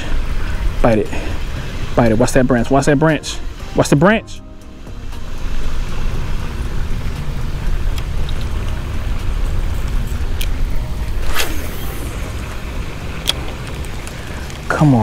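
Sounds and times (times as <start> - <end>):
wind buffeting microphone: 4.8 - 15.0
faint clicks: 7.9 - 8.8.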